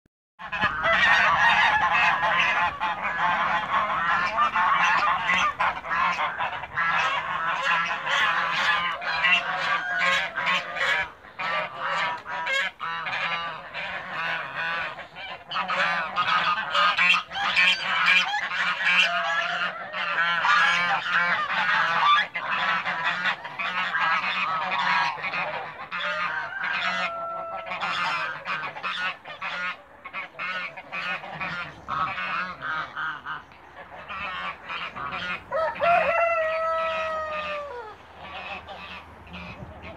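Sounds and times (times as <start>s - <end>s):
geese honking: 0.4s - 39.9s.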